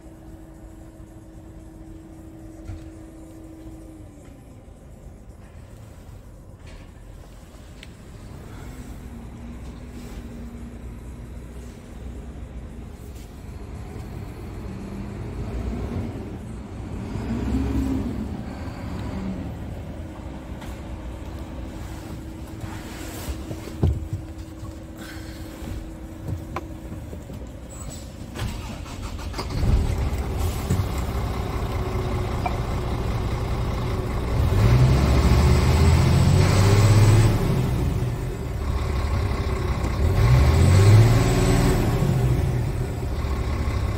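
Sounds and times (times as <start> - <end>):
truck diesel engine revving: 8.2 - 23.5, 27.9 - 43.9.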